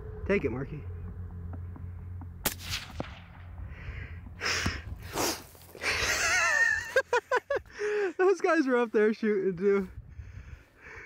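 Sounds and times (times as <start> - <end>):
rifle shot: 2.4 - 3.6.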